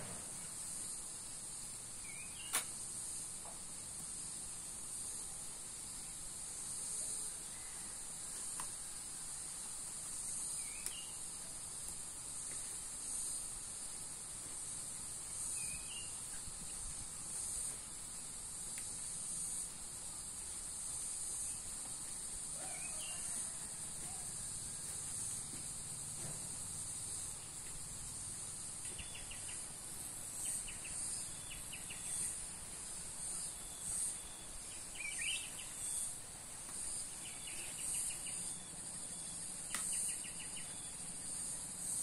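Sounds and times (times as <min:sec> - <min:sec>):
high-pitched insect chorus: 0:00.0 - 0:42.0
sharp click: 0:02.4 - 0:02.8.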